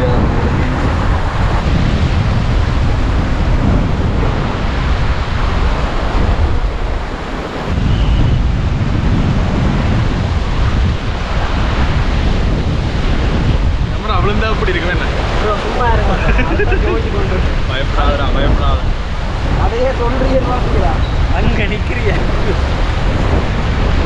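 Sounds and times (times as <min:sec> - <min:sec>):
wind buffeting microphone: 0:00.0 - 0:24.0
water rushing through sluice gates: 0:13.9 - 0:24.0.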